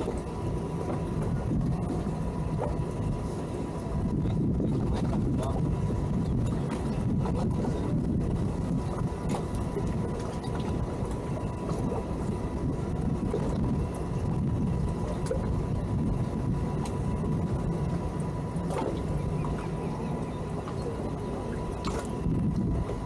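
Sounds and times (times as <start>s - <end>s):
boat engine idling: 0.0s - 23.0s.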